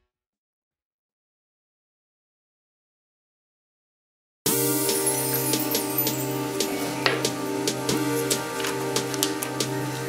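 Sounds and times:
background music with percussive beat: 4.5s - 10.0s.

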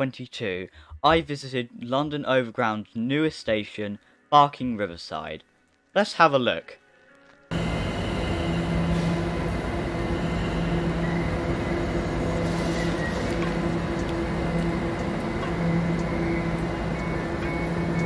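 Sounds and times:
background noise: 0.0s - 7.6s
electric train humming: 7.5s - 18.0s.

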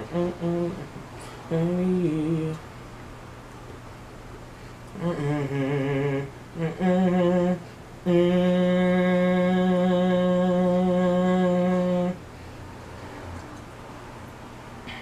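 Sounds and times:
man humming: 0.0s - 2.6s, 4.9s - 12.2s.

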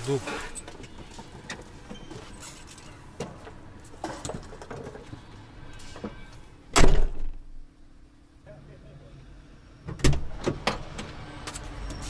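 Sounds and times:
truck door slamming shut: 6.7s - 7.4s.

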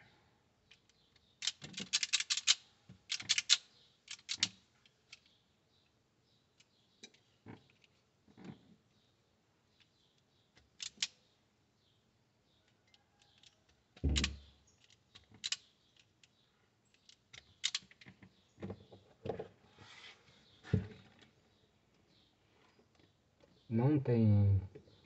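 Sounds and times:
wire stripper clicking and snapping: 0.7s - 5.2s, 10.6s - 11.2s, 13.2s - 18.2s.

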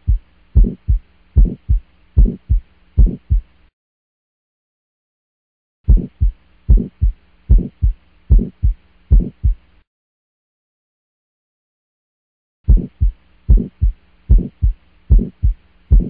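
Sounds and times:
heartbeat thumps: 0.0s - 3.5s, 5.9s - 9.6s, 12.7s - 16.0s
faint hum: 0.0s - 3.7s, 12.7s - 16.0s.

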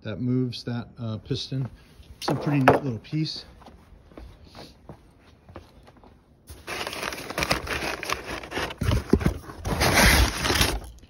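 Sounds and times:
packing material rustling: 6.5s - 11.0s.

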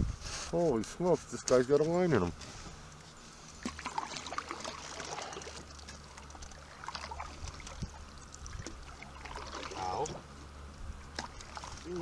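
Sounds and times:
low steady hum: 0.0s - 12.0s
small clicks ticks and rustles: 5.5s - 6.7s.

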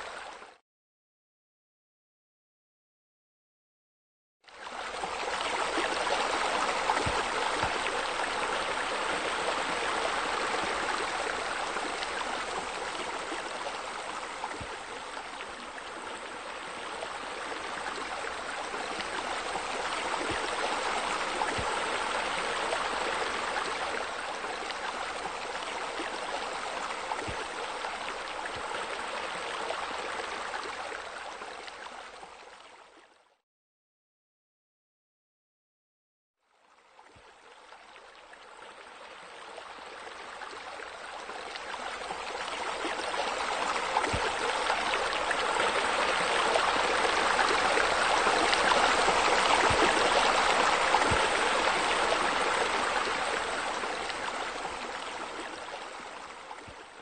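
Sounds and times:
running splashing water: 41.5s - 55.5s.

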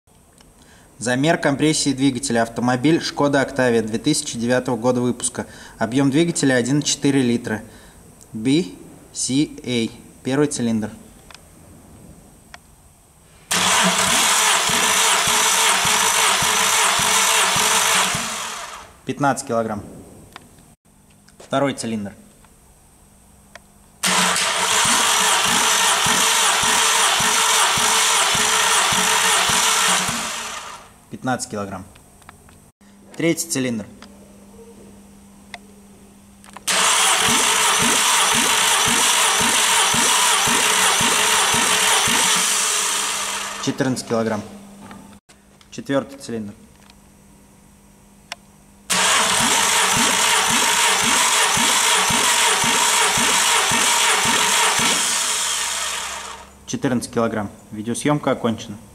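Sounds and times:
starter cranking engine: 13.5s - 19.0s, 24.0s - 30.9s, 36.6s - 43.9s, 48.9s - 56.6s.

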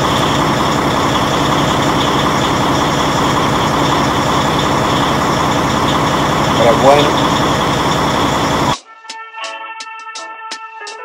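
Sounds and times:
diesel truck engine idling: 0.0s - 8.8s.

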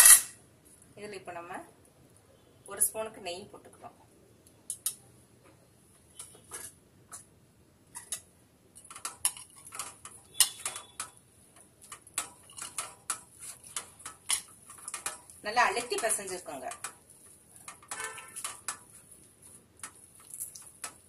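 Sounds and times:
dough kneaded by hand: 8.0s - 21.0s.

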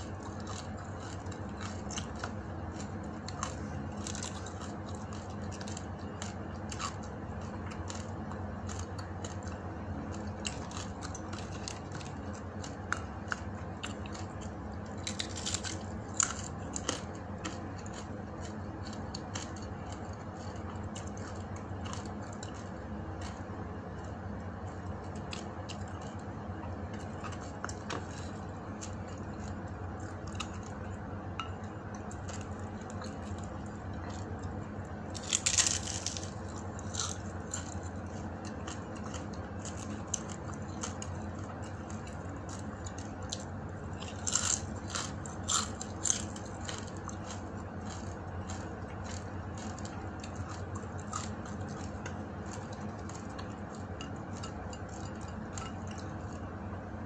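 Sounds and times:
person chewing crunchy food: 0.0s - 56.7s
steady low hum: 0.0s - 57.0s
loud crackling crunch: 31.7s - 56.4s.

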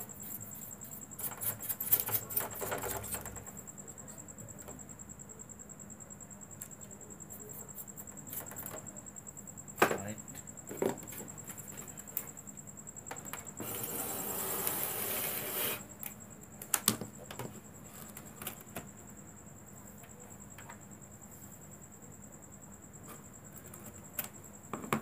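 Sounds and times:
knocks and clatters on workbench: 10.7s - 11.3s, 24.7s - 25.0s
hiss: 13.6s - 15.8s.

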